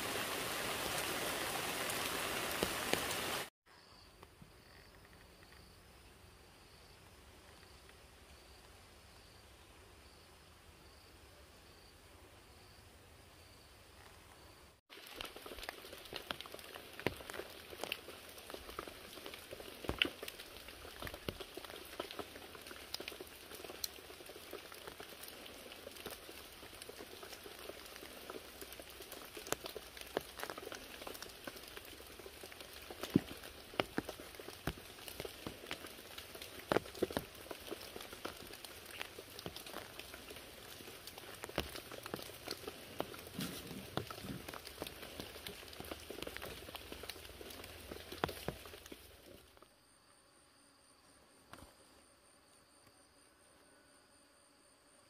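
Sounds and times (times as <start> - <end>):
water drops dripping on thatched roof: 14.9 - 49.3.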